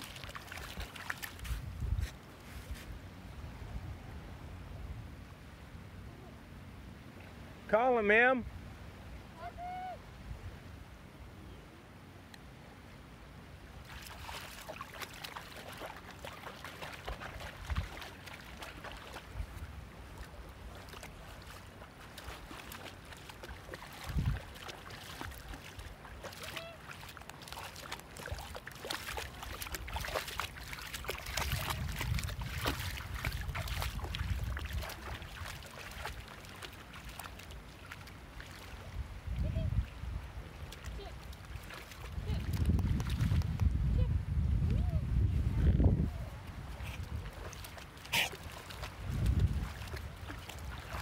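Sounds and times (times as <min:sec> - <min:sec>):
dog lapping water: 0:00.0 - 0:01.5, 0:13.9 - 0:38.7, 0:40.8 - 0:43.4, 0:46.7 - 0:51.0
dog splashing through water: 0:00.0 - 0:01.6, 0:13.8 - 0:38.8, 0:40.6 - 0:43.6, 0:46.7 - 0:51.0.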